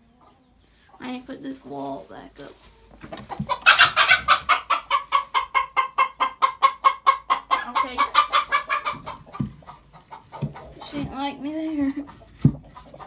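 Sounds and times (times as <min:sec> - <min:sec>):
chicken clucking rapidly: 0:03.0 - 0:13.0.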